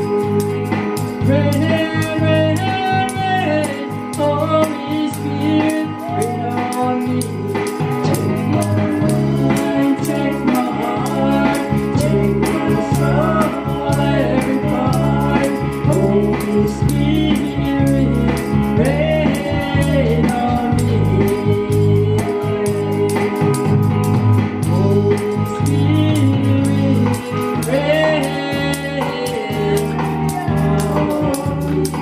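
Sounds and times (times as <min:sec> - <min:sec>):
instrumental backing with beat: 0:00.0 - 0:32.0
woman singing gospel song: 0:24.7 - 0:32.0.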